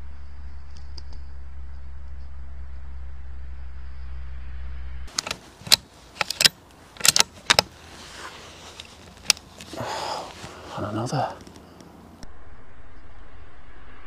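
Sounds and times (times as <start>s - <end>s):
steady low hum: 0.0s - 14.0s
rifle bolt clicks and rattles: 5.1s - 9.8s.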